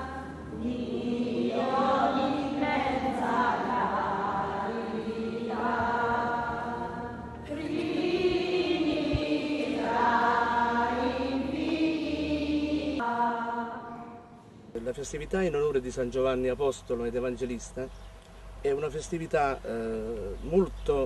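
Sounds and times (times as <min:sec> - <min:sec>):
voices singing liturgical chant: 0:00.0 - 0:14.5.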